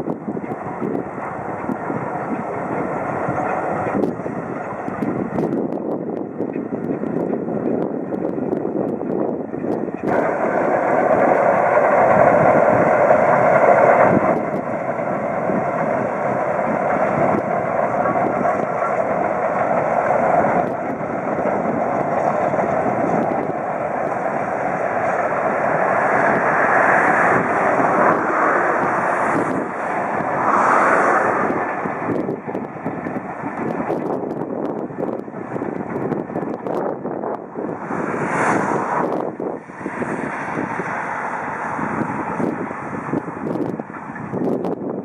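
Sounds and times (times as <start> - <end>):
distant steam train running: 0.0 - 45.0.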